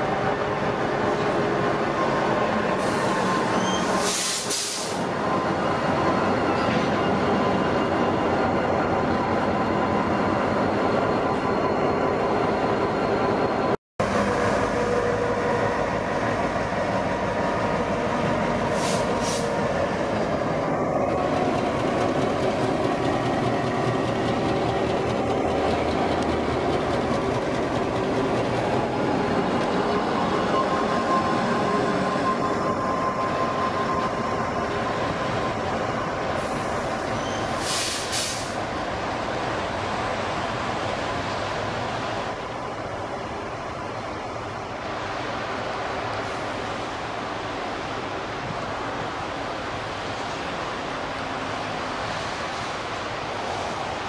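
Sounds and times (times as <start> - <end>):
diesel locomotive engines running: 0.0 - 54.0
train wheels clattering on rail: 21.1 - 30.5.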